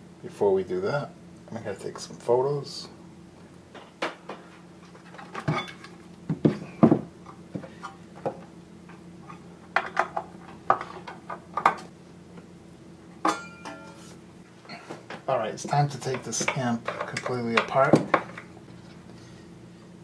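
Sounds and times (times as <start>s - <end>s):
metal casing clanking: 13.2s - 14.0s.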